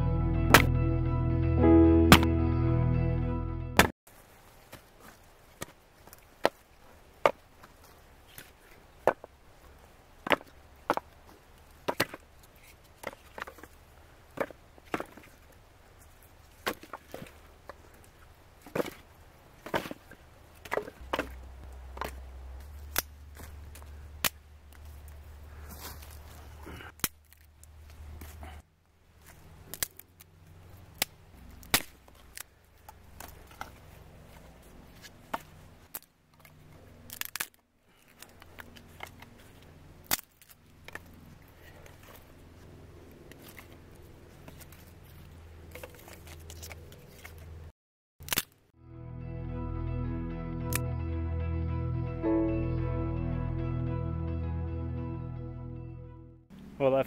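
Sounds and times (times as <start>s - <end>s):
axe chopping wood: 0.5s - 0.7s, 10.2s - 11.1s, 11.8s - 12.2s, 20.6s - 24.4s, 31.0s - 32.2s.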